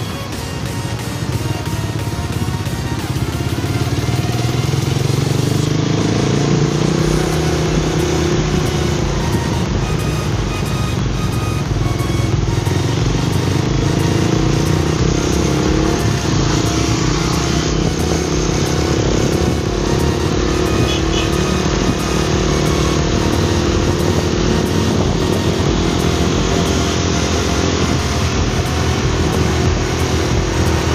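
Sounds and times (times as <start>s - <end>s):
motorcycle engine running: 0.0s - 30.9s.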